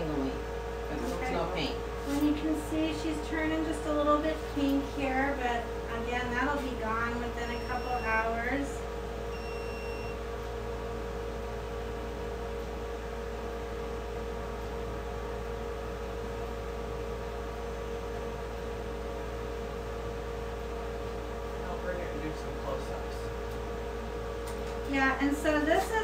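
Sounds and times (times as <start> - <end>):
steady electrical hum: 0.0 - 26.0
short high beep: 9.4 - 10.2.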